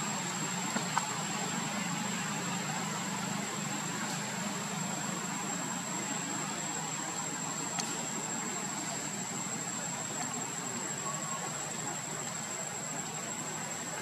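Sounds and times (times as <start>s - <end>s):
even hiss: 0.0s - 14.0s
faint click: 7.8s - 8.0s.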